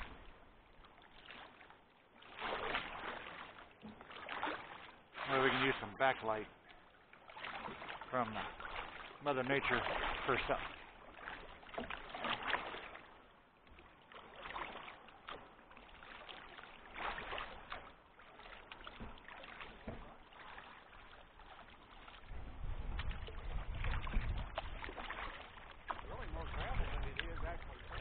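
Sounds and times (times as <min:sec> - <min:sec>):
paddle strokes splashing in water: 0:00.0 - 0:28.0.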